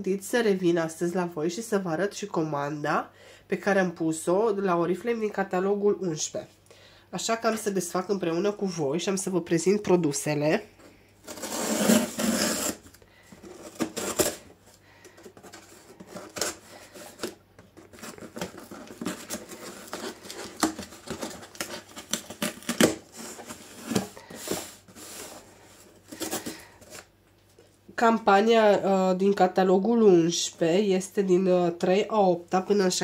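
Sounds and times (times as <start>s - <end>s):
cardboard parcel being opened: 11.2s - 27.1s.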